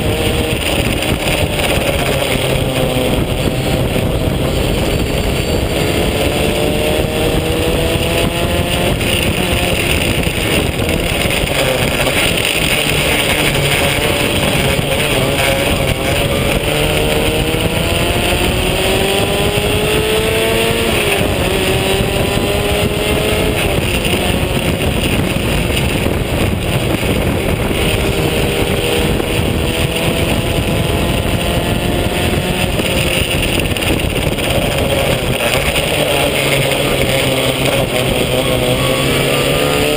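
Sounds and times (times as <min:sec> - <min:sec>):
race car engine revving: 0:00.0 - 0:39.9
wind rush on microphone: 0:00.0 - 0:39.9.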